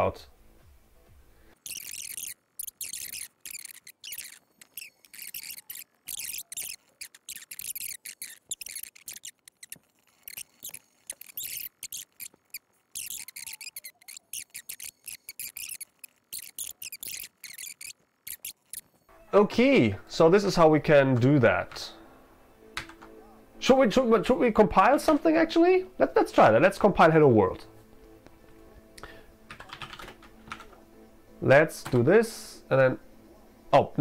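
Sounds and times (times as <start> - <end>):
computer keyboard typing: 1.6 - 18.9, 22.8 - 23.1, 29.5 - 30.8.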